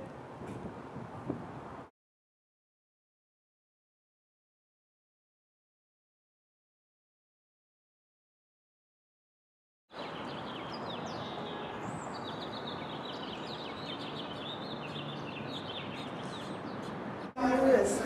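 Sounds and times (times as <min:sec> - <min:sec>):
outdoor background noise: 0:00.0 - 0:01.9, 0:09.9 - 0:18.0
small birds chirping: 0:09.9 - 0:17.6.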